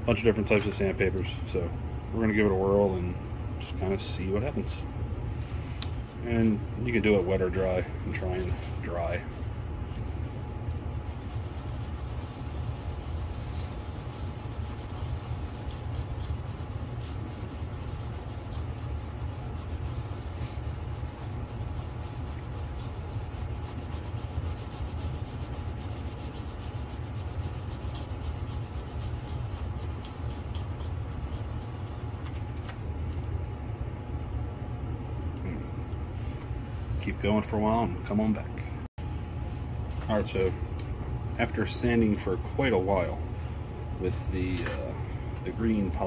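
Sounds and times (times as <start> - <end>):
steady low hum: 0.0 - 46.0
plastic sanding on polishing paper: 6.9 - 10.0, 10.9 - 32.8.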